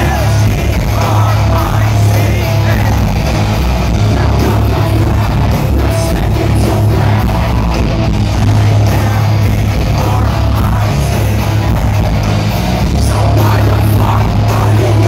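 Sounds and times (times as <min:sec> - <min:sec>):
live heavy metal band with singing: 0:00.0 - 0:15.0.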